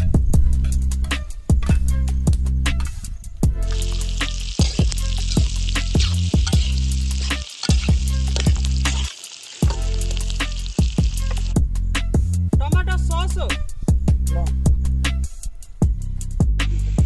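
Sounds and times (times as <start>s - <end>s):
vegetables sizzling in hot oil: 3.6s - 11.6s.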